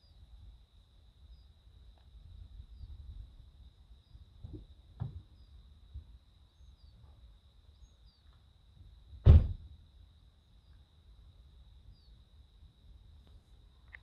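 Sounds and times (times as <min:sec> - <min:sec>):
crickets trilling: 0:00.0 - 0:14.0
faint bird chirps: 0:05.2 - 0:05.6, 0:06.4 - 0:08.4, 0:10.5 - 0:11.0, 0:11.8 - 0:12.3
loud short thump: 0:09.2 - 0:09.7.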